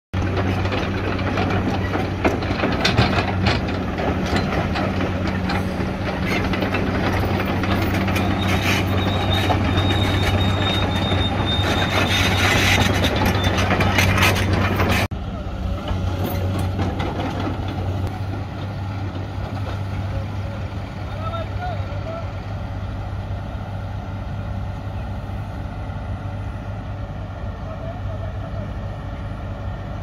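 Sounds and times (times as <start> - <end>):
steel tracks clanking and rattling: 0.2 - 22.2
excavator diesel engine running: 0.2 - 30.0
high squeal from running gear: 8.1 - 13.6.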